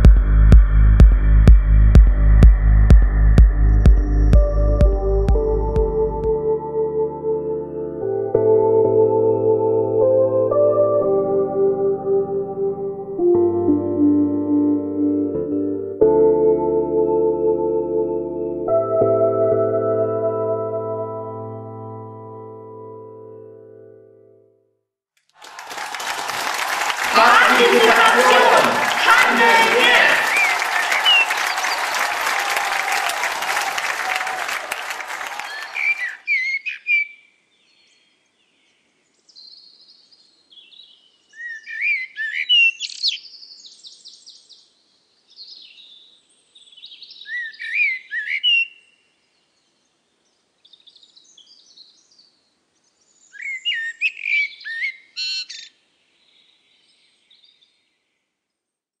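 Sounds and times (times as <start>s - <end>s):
applause: 25.3s - 36.2s.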